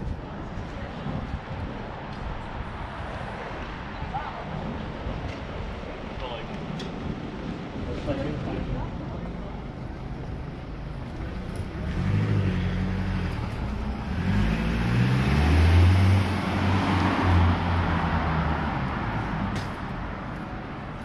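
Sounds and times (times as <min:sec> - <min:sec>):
city traffic noise: 0:00.0 - 0:21.0
car engine passing slowly: 0:08.6 - 0:21.0.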